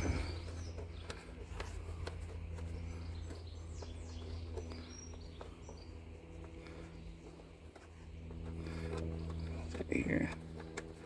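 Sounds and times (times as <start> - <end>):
bird chirps: 0.0 - 7.4
steady low hum: 0.0 - 11.0.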